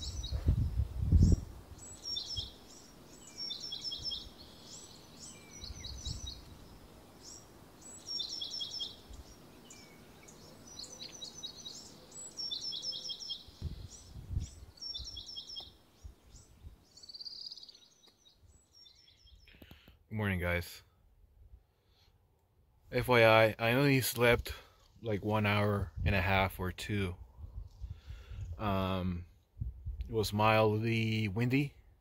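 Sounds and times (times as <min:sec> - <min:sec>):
wind rumbling on microphone: 0:00.0 - 0:02.6, 0:05.6 - 0:06.8, 0:13.4 - 0:15.3, 0:16.0 - 0:16.8, 0:25.8 - 0:30.3
songbird singing: 0:00.0 - 0:20.6.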